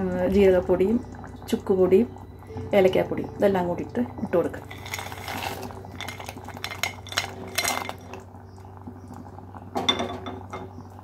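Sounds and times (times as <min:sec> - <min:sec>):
crockery and utensils clinking: 0:04.6 - 0:08.2.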